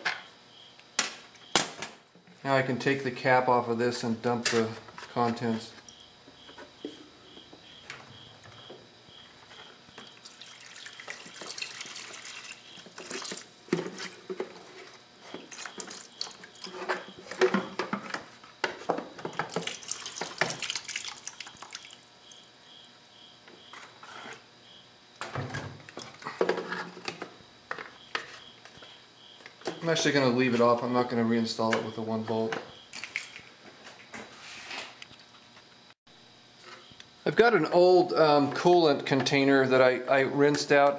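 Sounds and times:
liquid trickling and dripping: 0:10.0 - 0:13.5, 0:19.4 - 0:22.1.

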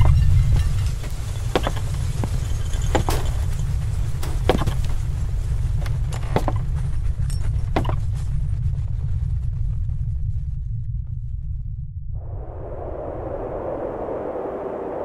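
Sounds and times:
slow footsteps: 0:00.0 - 0:11.1
deep rumbling drone: 0:00.0 - 0:15.0.

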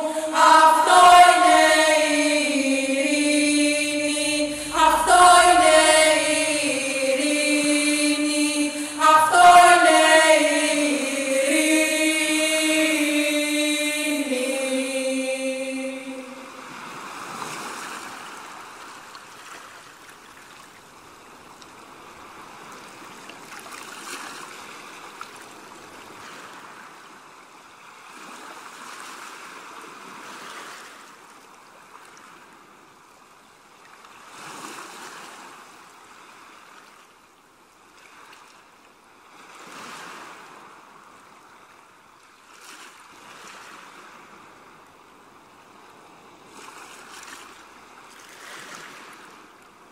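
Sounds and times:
rushing water: 0:00.0 - 0:45.6.

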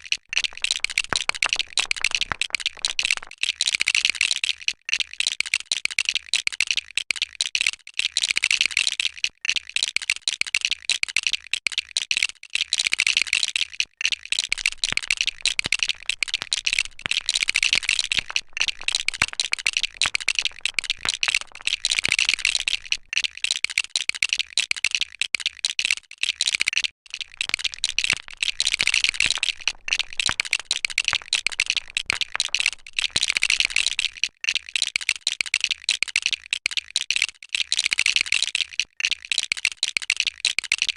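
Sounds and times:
plastic bricks clattering and clicking: 0:00.3 - 0:03.4, 0:14.5 - 0:23.2, 0:26.6 - 0:34.3.

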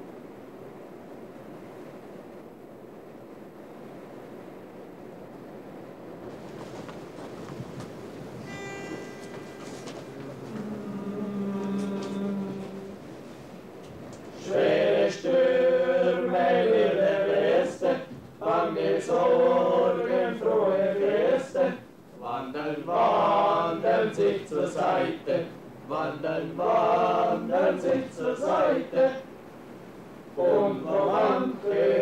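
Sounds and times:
men singing slow chant: 0:10.4 - 0:13.0, 0:14.4 - 0:29.3, 0:30.4 - 0:32.0.

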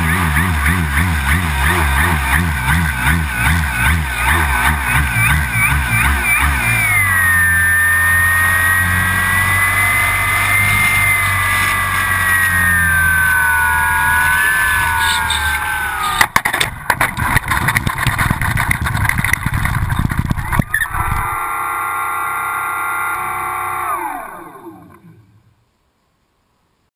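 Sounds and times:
electric motor and propeller whine: 0:00.0 - 0:16.3, 0:17.8 - 0:25.5
model plane landing clatter: 0:14.9 - 0:21.2
wind rush: 0:17.2 - 0:21.4.

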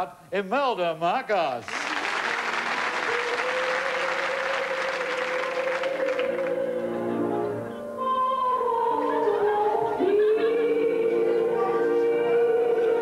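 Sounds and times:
audience applause: 0:01.6 - 0:06.6
live music held notes and chords: 0:05.6 - 0:13.0.

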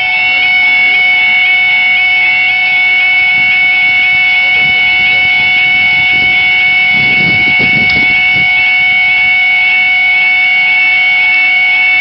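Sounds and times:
steady high alarm tone: 0:00.0 - 0:12.0.

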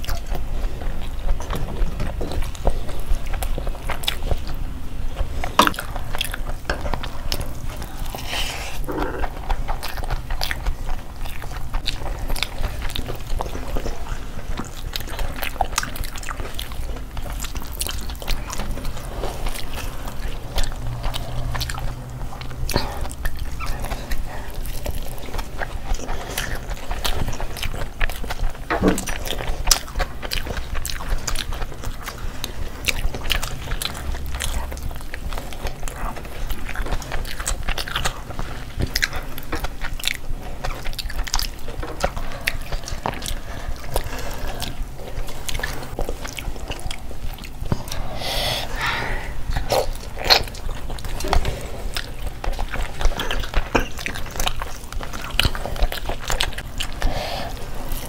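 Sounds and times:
people chewing food: 0:00.0 - 0:58.0
steady low hum: 0:00.0 - 0:58.0
wet mouth smacks and clicks: 0:05.6 - 0:06.0.

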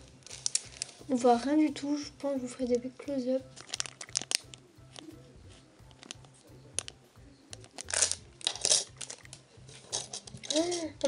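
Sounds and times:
plastic bag crinkling: 0:00.2 - 0:01.0, 0:03.5 - 0:05.0, 0:07.6 - 0:11.0
small metal pieces clicking: 0:07.8 - 0:10.9.

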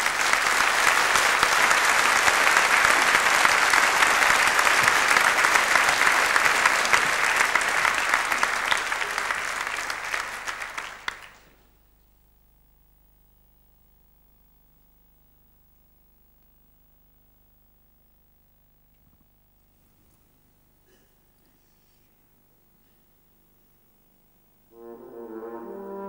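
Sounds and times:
large audience applauding: 0:00.0 - 0:11.7.

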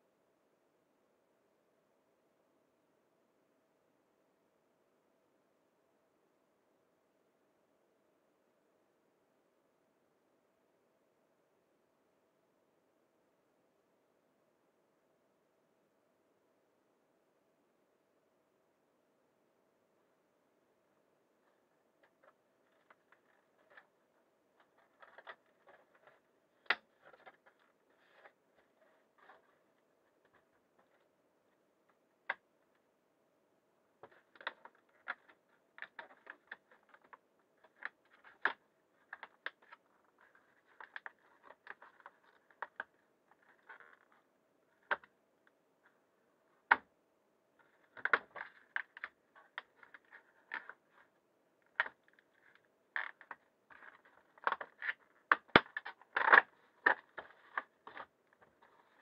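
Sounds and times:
faint steady hum: 0:00.0 - 0:59.0
irregular clicks taps and crunches: 0:22.0 - 0:31.1, 0:34.0 - 0:45.2, 0:47.6 - 0:59.0.

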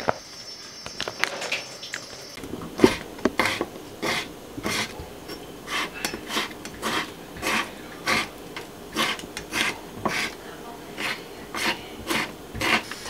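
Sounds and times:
knife slicing on wooden board: 0:05.7 - 0:08.3, 0:08.9 - 0:10.4, 0:11.0 - 0:13.0.

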